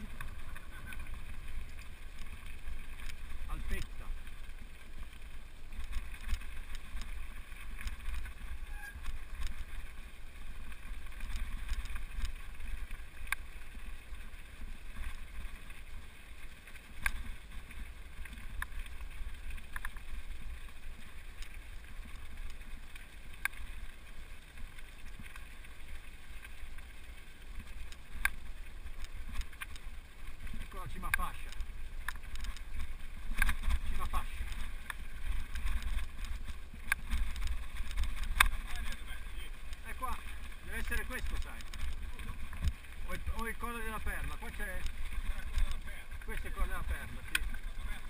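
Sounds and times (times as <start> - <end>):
tyres rolling on gravel: 0.0 - 48.0
stones clicking: 31.0 - 39.0.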